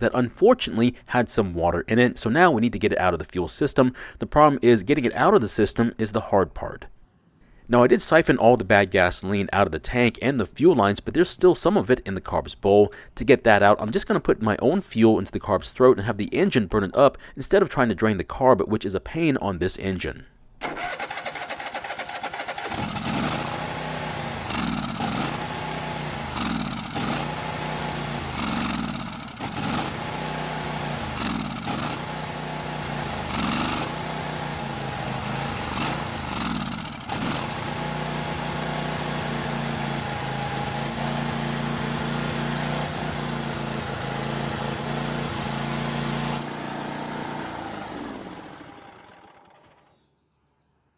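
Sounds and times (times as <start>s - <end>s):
mower engine revving: 20.6s - 50.0s.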